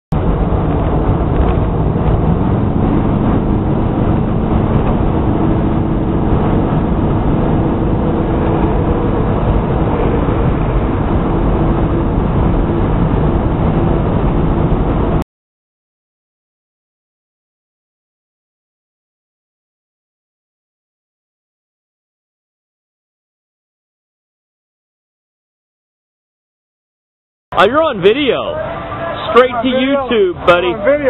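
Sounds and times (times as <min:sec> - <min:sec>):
car engine droning: 0:00.1 - 0:15.2, 0:27.5 - 0:31.0
road noise inside car: 0:00.1 - 0:15.2, 0:27.6 - 0:31.0.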